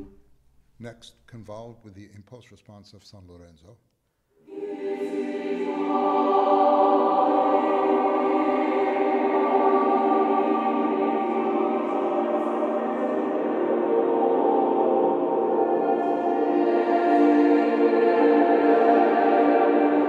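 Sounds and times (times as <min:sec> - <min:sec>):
reverberant choir singing: 0:04.4 - 0:20.0.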